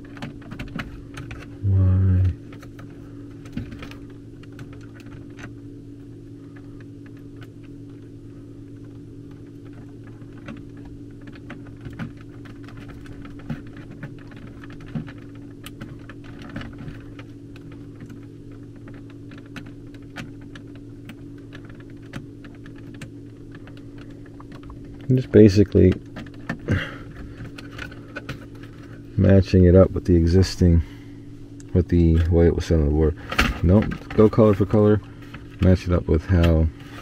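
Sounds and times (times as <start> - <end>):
steady low hum: 0.0 - 37.0
wires clicking and tapping: 2.2 - 29.0.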